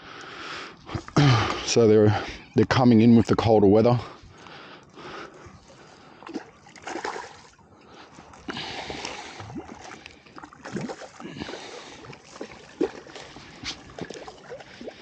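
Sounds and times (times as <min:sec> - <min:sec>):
fish thrashing and splashing: 0:05.0 - 0:15.0.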